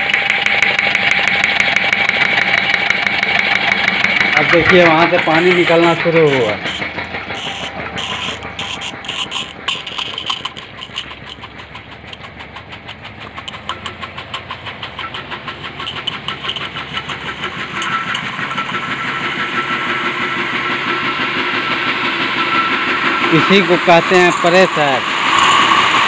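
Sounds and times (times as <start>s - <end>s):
pressure pump pulsing: 0.0s - 26.0s
water jet spraying: 3.5s - 20.9s.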